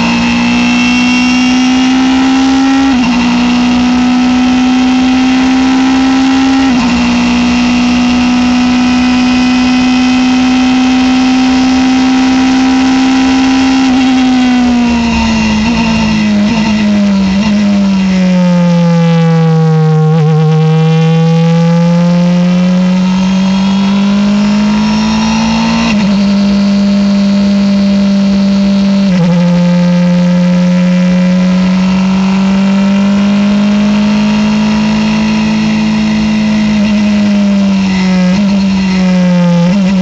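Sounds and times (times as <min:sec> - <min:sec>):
race car engine revving: 0:00.0 - 0:40.0.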